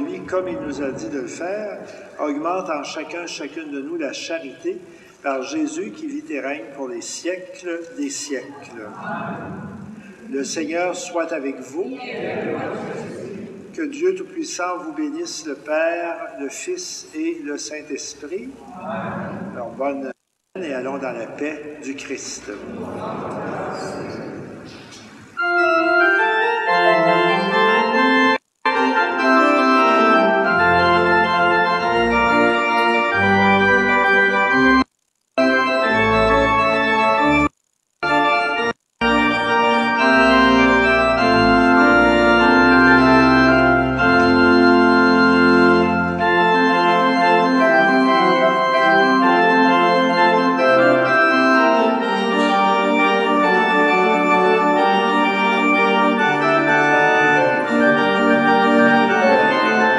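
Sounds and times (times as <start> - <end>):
pipe organ chords: 0.0 - 8.8, 24.2 - 59.9.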